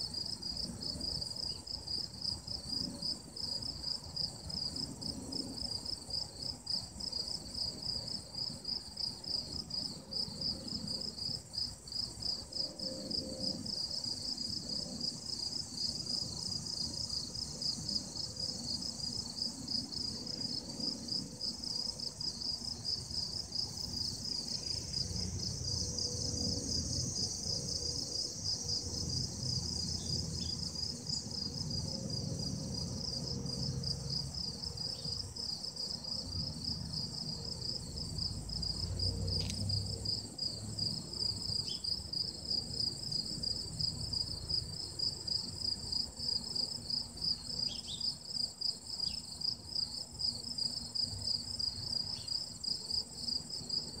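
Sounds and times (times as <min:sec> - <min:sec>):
insects chirping: 0:00.0 - 0:54.0.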